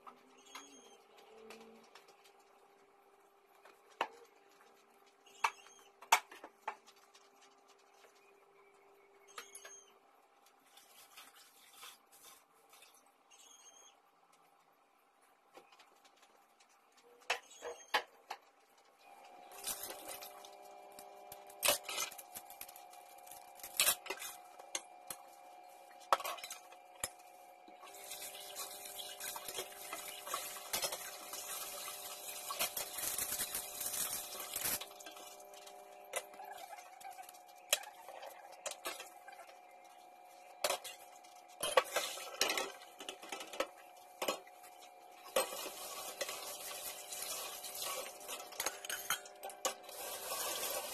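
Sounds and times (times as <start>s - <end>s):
running tap water: 27.8s - 37.3s, 44.8s - 50.9s.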